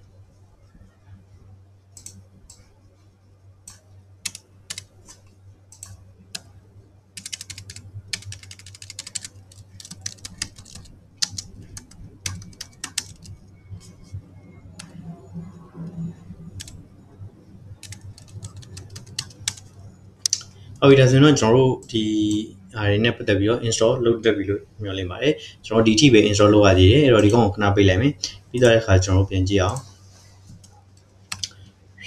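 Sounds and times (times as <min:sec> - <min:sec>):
low steady hum: 0:00.0 - 0:32.0
computer keyboard typing: 0:02.0 - 0:02.7, 0:03.7 - 0:06.5, 0:07.2 - 0:14.1, 0:14.8 - 0:15.1, 0:15.8 - 0:16.8, 0:17.8 - 0:20.5, 0:27.2 - 0:27.4, 0:31.3 - 0:31.6.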